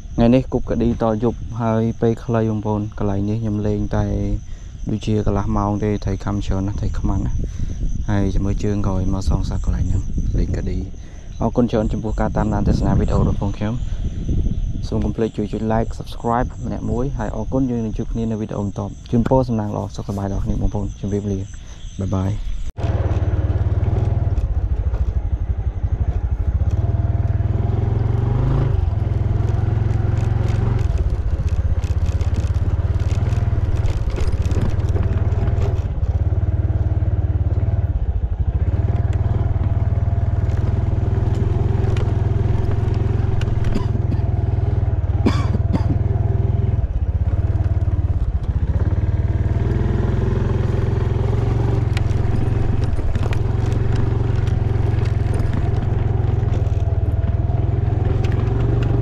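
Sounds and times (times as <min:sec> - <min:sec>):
motorcycle engine drone: 0:00.0 - 0:59.0
bike knocks and rattles: 0:29.1 - 0:37.8, 0:51.3 - 0:59.0.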